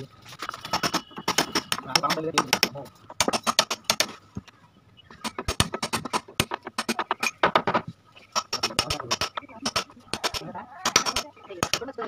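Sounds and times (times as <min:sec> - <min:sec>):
hammer tapping on chisel: 0:00.7 - 0:04.1, 0:08.4 - 0:11.8.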